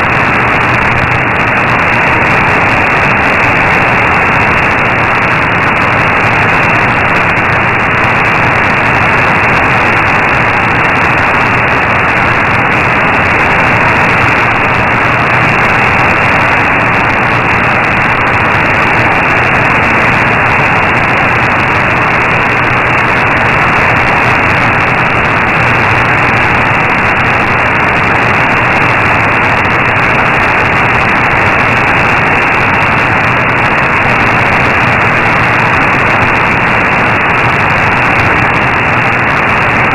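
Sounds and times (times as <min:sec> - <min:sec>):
radio static and hiss: 0:00.0 - 0:39.9.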